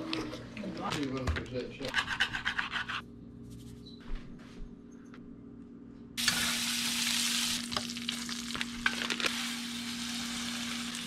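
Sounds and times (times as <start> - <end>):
butter sizzling in a pan: 6.2 - 11.0.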